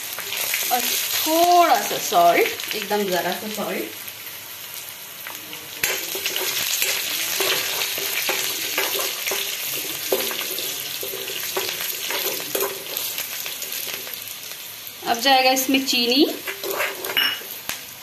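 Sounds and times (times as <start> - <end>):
chillies sizzling in hot oil: 0.0 - 18.0
steel ladle scraping a pan: 5.8 - 14.1, 16.3 - 17.6.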